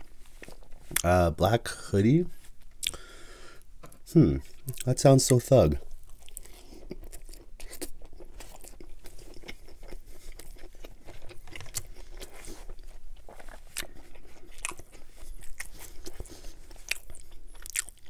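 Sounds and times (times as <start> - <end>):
man chewing food: 0.0 - 1.1, 2.4 - 4.9, 5.8 - 18.0.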